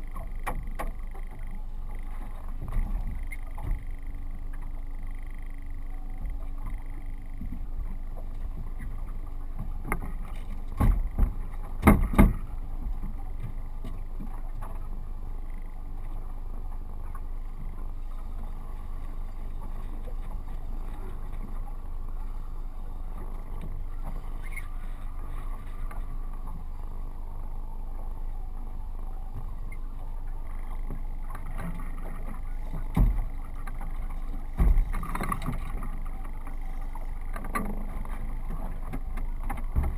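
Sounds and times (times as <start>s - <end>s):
water lapping: 0.0s - 39.9s
wind: 0.0s - 39.9s
knocks on a boat: 10.8s - 12.5s, 32.8s - 33.4s, 34.5s - 35.3s, 39.5s - 39.9s.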